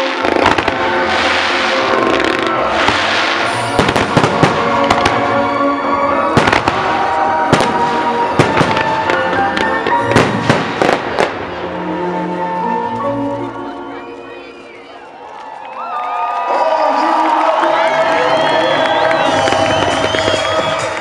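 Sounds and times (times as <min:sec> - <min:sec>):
fireworks hissing crackle: 0:00.0 - 0:05.3
fireworks bursting with sharp bangs: 0:00.0 - 0:05.6, 0:06.3 - 0:11.6, 0:19.1 - 0:21.0
music playing: 0:00.0 - 0:15.1, 0:16.5 - 0:21.0.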